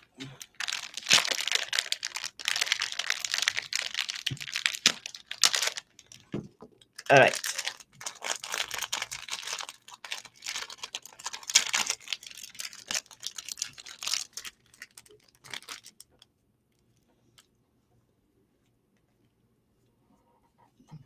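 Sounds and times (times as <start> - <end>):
wrapper crinkling and rustling: 0.0 - 16.2.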